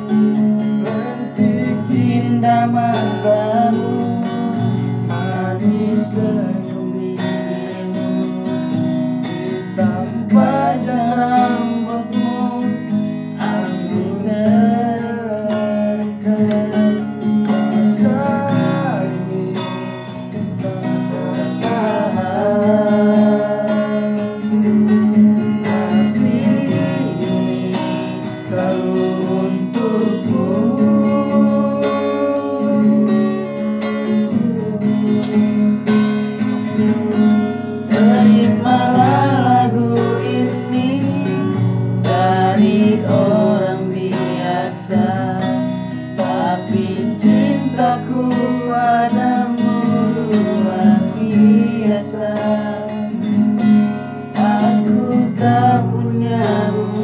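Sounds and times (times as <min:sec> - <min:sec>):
acoustic guitar strumming: 0:00.0 - 0:57.0
person singing: 0:00.0 - 0:57.0.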